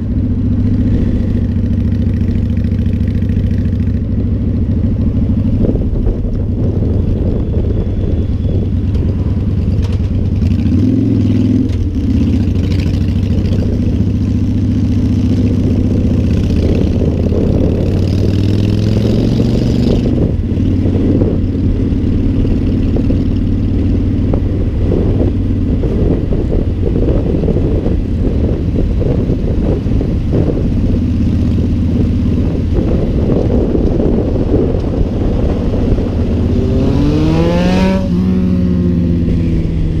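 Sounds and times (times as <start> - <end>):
motorcycle engine running: 0.0 - 40.0
wind noise on microphone: 0.0 - 40.0.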